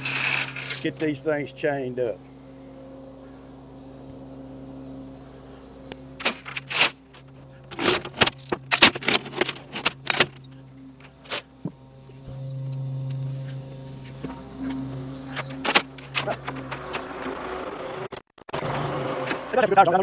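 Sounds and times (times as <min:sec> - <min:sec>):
steel chains clanking: 0:00.0 - 0:01.6, 0:06.2 - 0:17.5
engine idling: 0:00.0 - 0:18.2.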